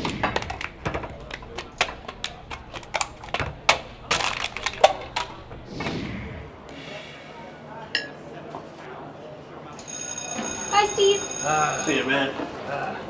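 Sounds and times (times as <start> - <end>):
plastic cups clacking on table: 0.0 - 5.6
brief rushing noise: 5.7 - 6.7.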